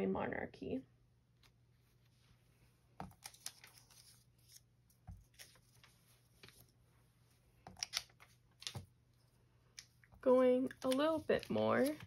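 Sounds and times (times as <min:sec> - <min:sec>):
paper labels peeled and crinkling: 0:03.1 - 0:06.8, 0:10.7 - 0:12.0.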